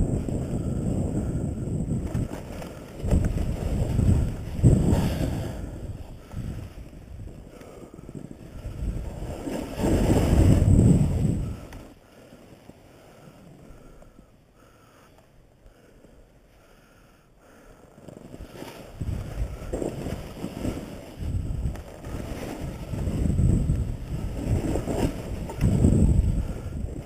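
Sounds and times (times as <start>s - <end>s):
wind buffeting microphone: 0.0s - 12.0s, 18.3s - 27.0s
snowboard sliding over snow: 0.0s - 14.4s, 17.8s - 27.0s.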